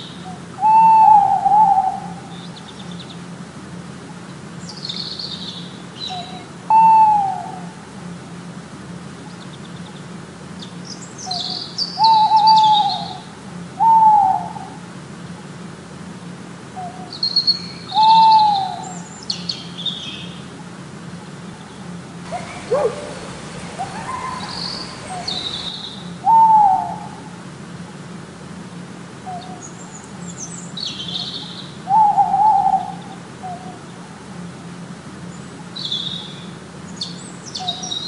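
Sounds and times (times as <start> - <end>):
owl hooting: 0.2 - 2.4, 6.0 - 7.8, 11.3 - 14.8, 17.9 - 19.0, 22.3 - 27.2, 31.9 - 33.8
small birds chirping: 2.2 - 3.3, 4.0 - 6.5, 9.2 - 13.3, 16.8 - 26.4, 29.4 - 31.8.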